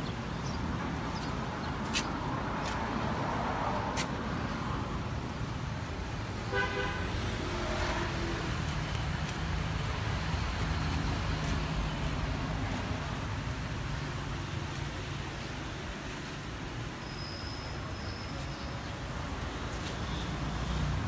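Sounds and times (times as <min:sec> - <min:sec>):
traffic rumble: 0:00.0 - 0:21.0
vehicle horn toot: 0:06.5 - 0:08.2.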